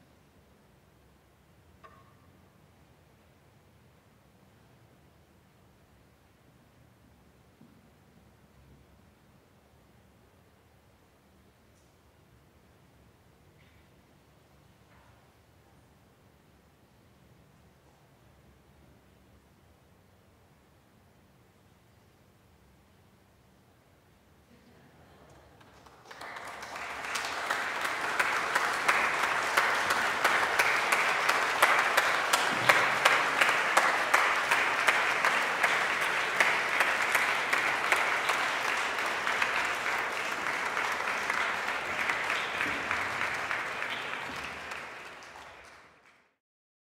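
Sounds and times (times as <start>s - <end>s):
audience applauding: 25.6s - 46.4s.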